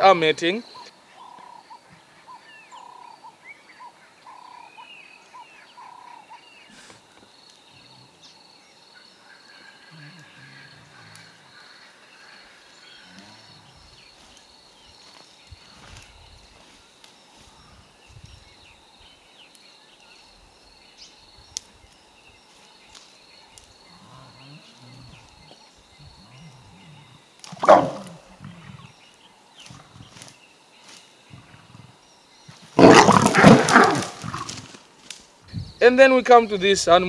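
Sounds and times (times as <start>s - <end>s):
lion snarling: 9.6s - 14.1s, 23.9s - 29.0s, 31.3s - 32.0s, 32.6s - 34.7s.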